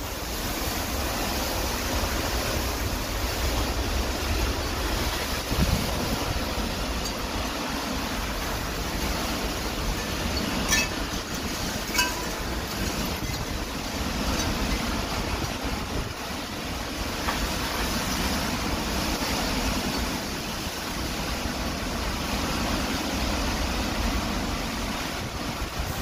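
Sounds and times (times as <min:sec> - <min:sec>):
heavy rain pouring: 0:00.0 - 0:26.0
wind gusts buffeting microphone: 0:00.0 - 0:26.0.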